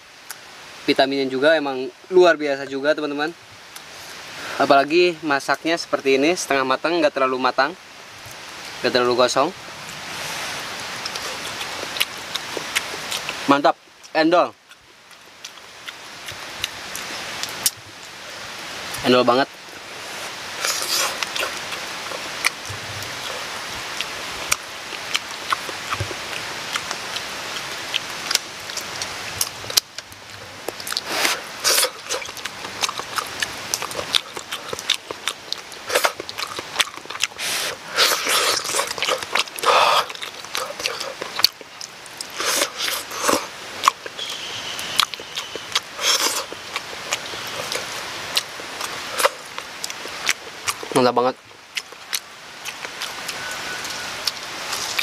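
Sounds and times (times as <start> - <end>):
steady background hiss: 0.0 - 55.0
chewing and lip-smacking: 11.0 - 13.5, 14.6 - 17.8, 20.6 - 51.1, 51.7 - 55.0.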